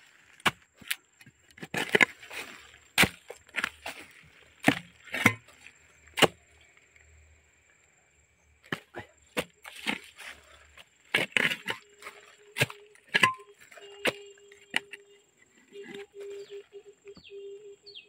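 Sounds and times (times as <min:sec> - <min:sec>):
hoe chopping into soil: 0:00.3 - 0:06.4, 0:08.7 - 0:10.4, 0:11.1 - 0:14.2.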